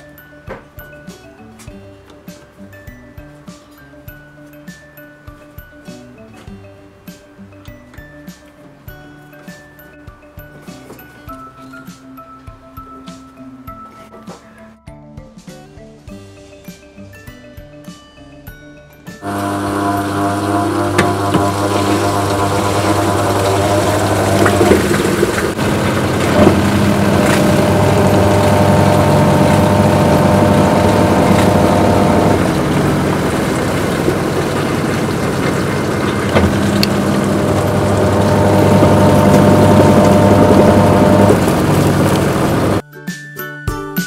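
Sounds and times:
high-pitched whine: 0:19.2 - 0:42.8
washing machine hum: 0:19.2 - 0:42.8.

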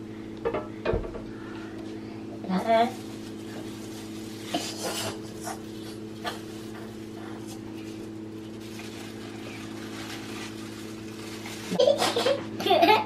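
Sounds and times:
steady low hum: 0:00.0 - 0:13.0
plastic sheeting rustling: 0:02.7 - 0:12.4.

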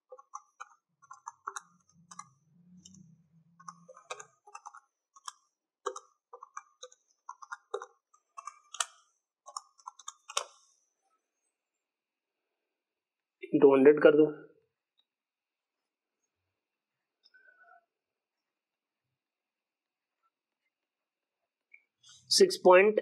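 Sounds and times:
calculator keys clicking: 0:00.0 - 0:03.0, 0:03.6 - 0:10.6.

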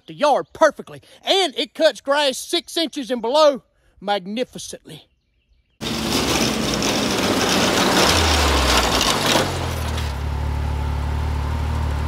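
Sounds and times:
vehicle engine running: 0:05.8 - 0:12.0.

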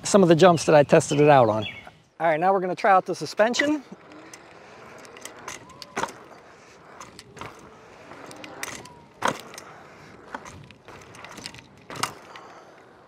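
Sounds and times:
scooter suspension clunks: 0:02.8 - 0:13.0
rattles and clicks: 0:03.4 - 0:13.0.

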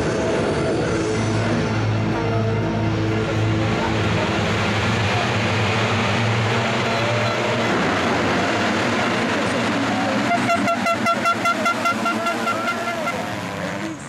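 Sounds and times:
motocross bikes revving: 0:00.9 - 0:14.0
rapid pitched toots: 0:10.3 - 0:14.0.

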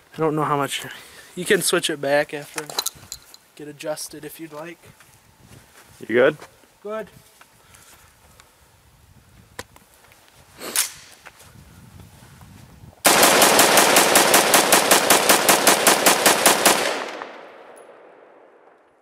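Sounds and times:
rifle rapid fire: 0:13.0 - 0:18.8.

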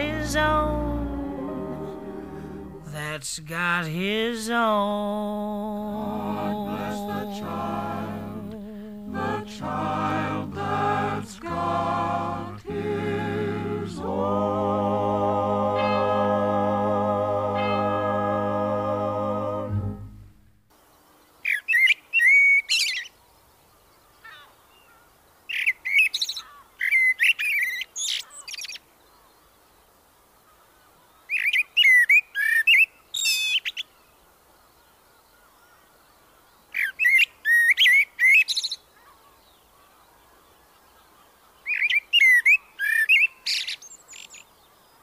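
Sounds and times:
recorded song: 0:00.0 - 0:20.6
songbird chirping and trilling: 0:17.4 - 0:18.2, 0:21.0 - 0:29.9, 0:31.0 - 0:45.0.

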